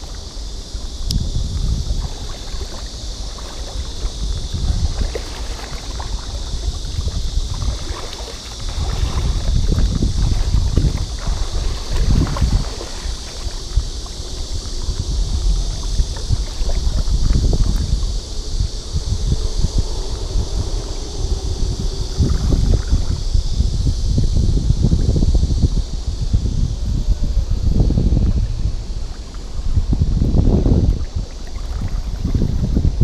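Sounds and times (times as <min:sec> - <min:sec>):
water sloshing around wading person: 0:00.0 - 0:19.1, 0:21.8 - 0:23.4, 0:28.9 - 0:33.0
wind buffeting microphone: 0:00.0 - 0:33.0.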